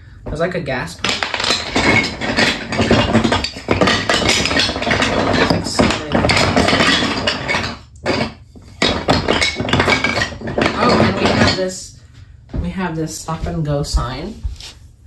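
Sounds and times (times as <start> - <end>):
wooden toy track pieces clattering: 1.0 - 11.8.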